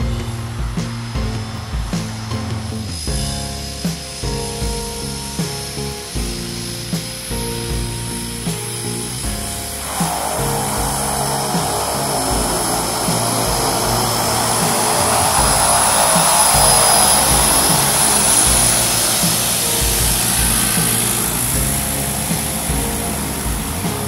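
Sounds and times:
background music with steady beat: 0.0s - 24.0s
high turbine whine: 5.7s - 24.0s
turboprop plane taxiing: 9.4s - 24.0s.

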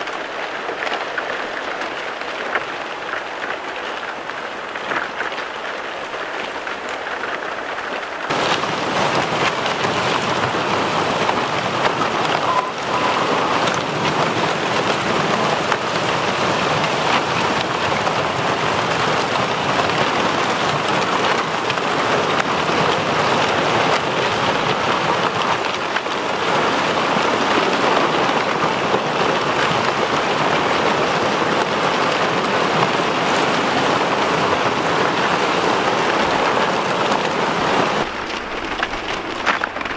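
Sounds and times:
ice plates breaking and crackling: 38.0s - 39.9s.

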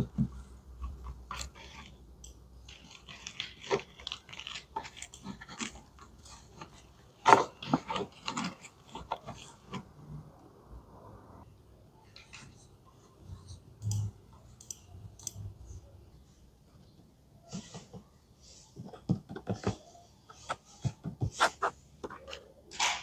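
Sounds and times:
plastic dolls clicking and tapping: 18.8s - 21.4s.

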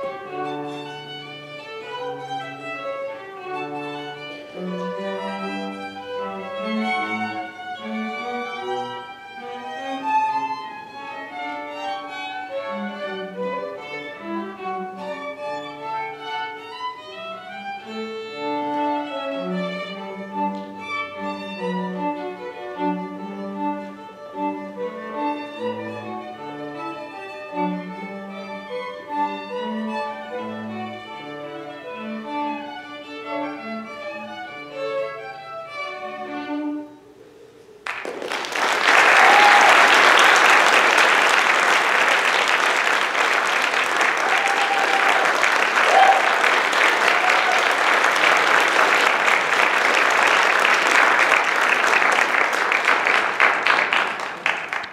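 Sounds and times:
string trio playing: 0.0s - 37.8s
short cheers: 37.8s - 40.9s, 44.0s - 48.4s
audience applause: 37.8s - 54.9s.

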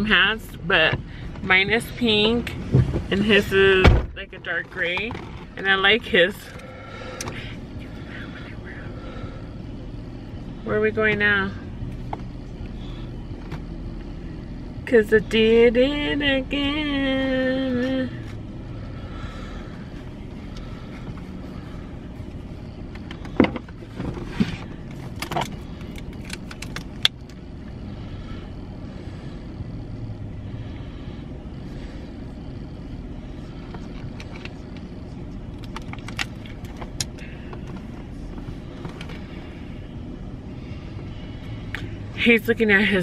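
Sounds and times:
truck engine and road rumble: 0.0s - 43.0s.

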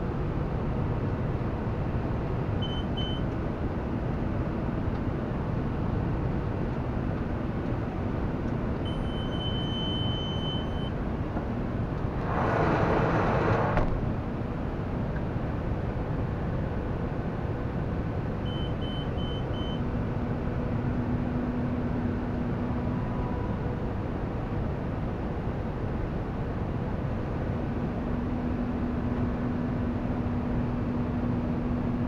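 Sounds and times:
tractor engine and machinery drone: 0.0s - 32.0s
cab monitor beeps: 2.6s - 3.3s, 8.8s - 11.0s, 18.4s - 19.8s.

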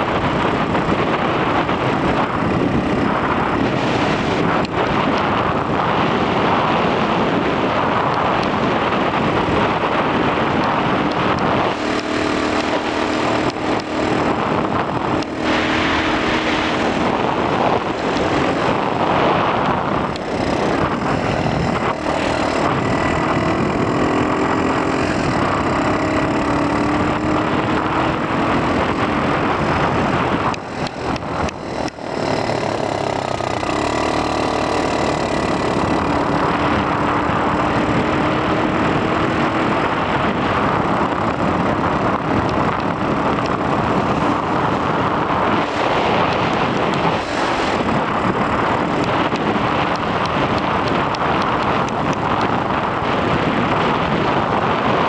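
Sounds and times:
two-stroke engine revving: 0.0s - 55.0s
wind noise on microphone: 0.0s - 55.0s.

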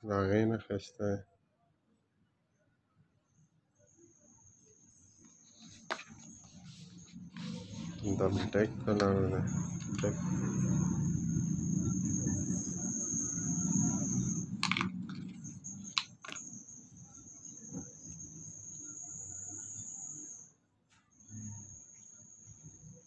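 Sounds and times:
steady high-pitched tone: 6.4s - 20.5s.

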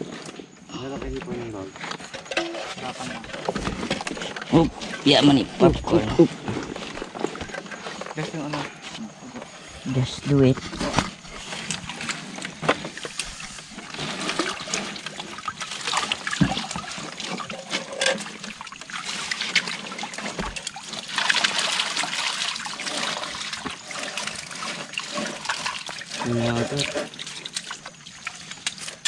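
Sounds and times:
water trickling and splashing: 10.8s - 29.0s.

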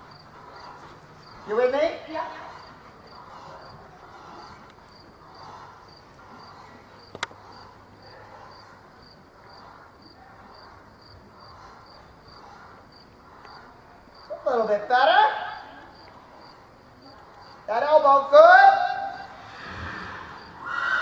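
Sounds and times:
horse trotting on sand: 0.0s - 6.6s.

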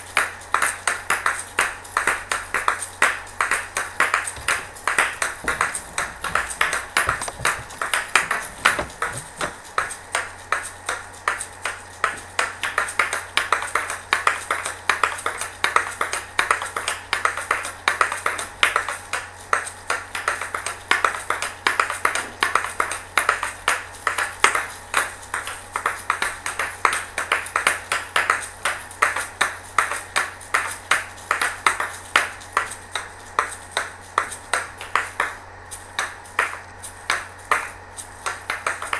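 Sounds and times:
shaker balls clacking: 4.2s - 9.9s.

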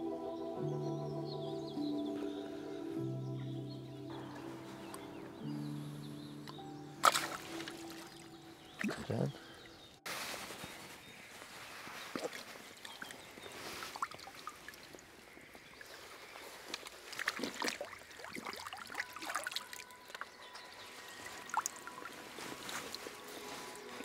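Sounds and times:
shallow water splashing: 6.4s - 10.7s, 11.9s - 24.0s
water dripping off net: 6.5s - 9.3s, 12.1s - 24.0s.

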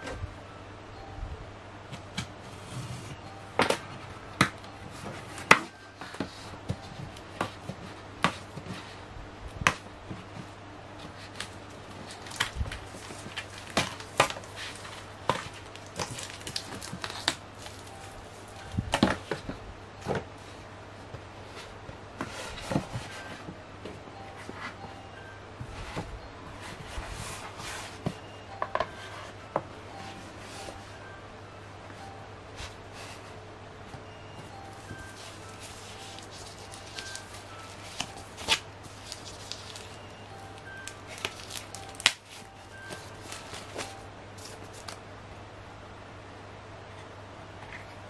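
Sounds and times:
cardboard box being handled: 34.7s - 44.9s.

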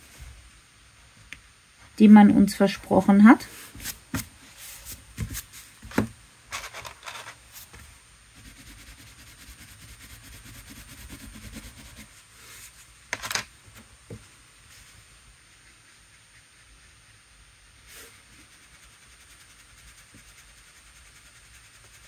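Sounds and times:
crayon scribbling on paper: 8.4s - 12.7s, 17.9s - 22.0s.

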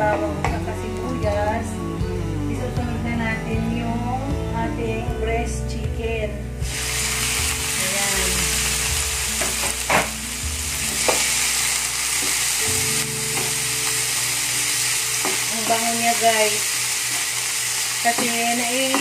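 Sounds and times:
chicken sizzling in hot oil: 6.7s - 19.0s.

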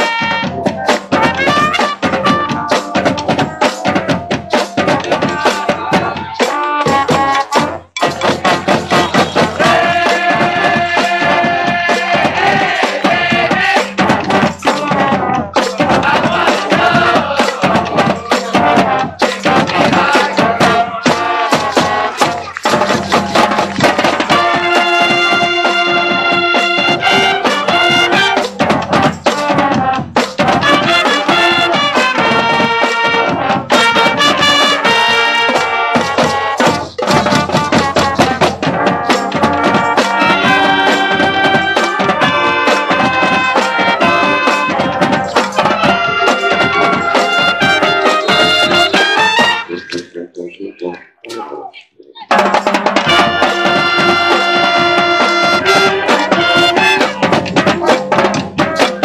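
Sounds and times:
marching band brass: 0.0s - 50.0s, 52.3s - 59.0s
drumline with bass drums: 0.0s - 50.1s, 52.2s - 59.0s.

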